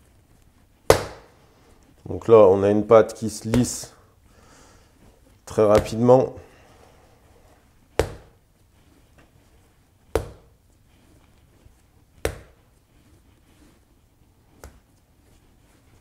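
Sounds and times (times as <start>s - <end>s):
wet dough slapping on countertop: 0.8s - 1.4s, 3.4s - 3.9s, 5.6s - 6.0s, 7.9s - 8.4s, 10.0s - 10.6s, 12.1s - 12.7s, 14.5s - 15.0s.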